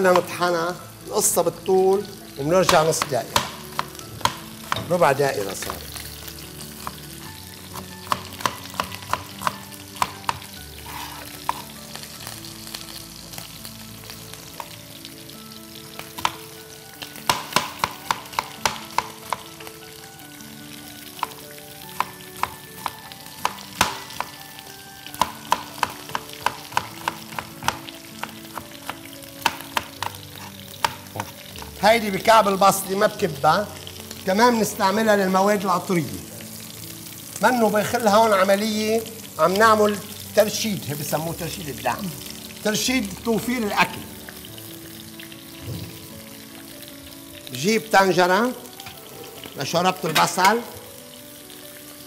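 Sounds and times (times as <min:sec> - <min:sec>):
knife tapping on cutting board: 0:02.7 - 0:04.9, 0:08.0 - 0:10.5, 0:17.3 - 0:19.5, 0:22.0 - 0:24.4, 0:25.2 - 0:30.2.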